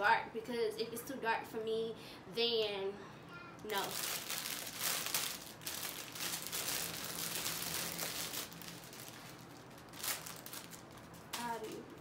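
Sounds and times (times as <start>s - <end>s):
plastic bag crinkling: 3.7s - 11.8s.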